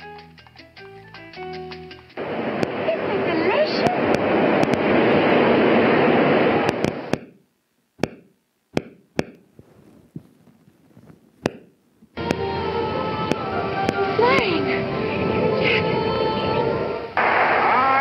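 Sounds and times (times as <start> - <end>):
film soundtrack with steady tones: 0.0 - 4.9, 12.2 - 17.8
noisy film soundtrack: 0.0 - 7.4, 12.2 - 18.0
sharp irregular clicks: 3.8 - 4.9.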